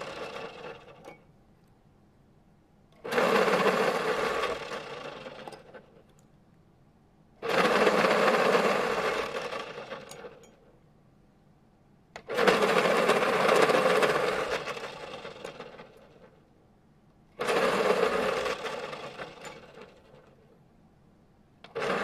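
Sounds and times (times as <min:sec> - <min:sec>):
pencil sharpener grinding: 0:17.4 - 0:19.8.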